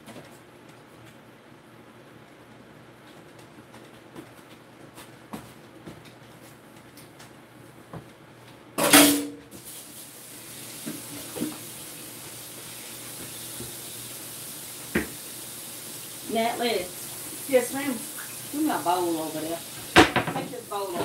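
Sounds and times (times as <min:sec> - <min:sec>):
kitchenware clattering: 0:08.8 - 0:09.4, 0:19.9 - 0:21.0
kitchen tap running: 0:08.9 - 0:21.0
kitchen clicks and knocks: 0:20.0 - 0:21.0.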